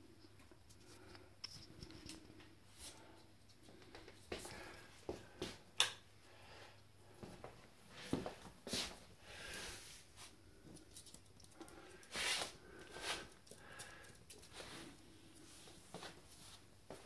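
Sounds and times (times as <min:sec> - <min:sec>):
puppy claws clicking on floor: 0:10.6 - 0:15.1.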